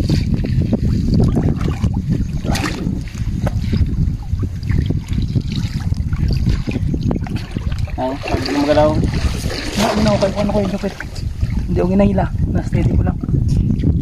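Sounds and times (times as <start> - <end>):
water sloshing and trickling: 0.0 - 13.0
small splashes: 4.6 - 11.7.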